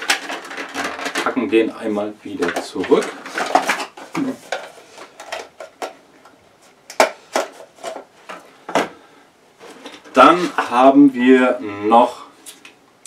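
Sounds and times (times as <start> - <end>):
cardboard and plastic rustling: 0.0 - 6.0, 6.6 - 9.0, 9.6 - 10.9.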